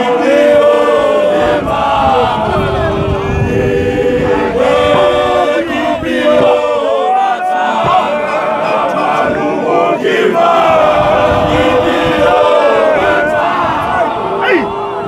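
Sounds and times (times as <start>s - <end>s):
men singing in harmony: 0.0s - 15.0s.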